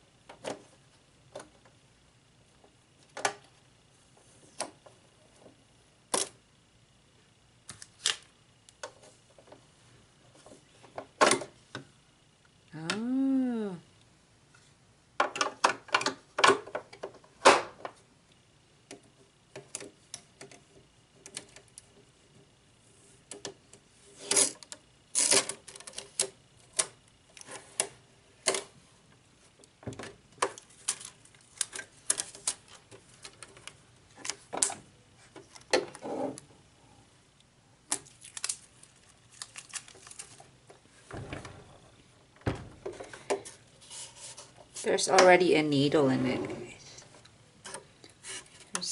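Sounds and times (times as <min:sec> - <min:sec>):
machine tipped over thumps: 0:41.1 - 0:43.2.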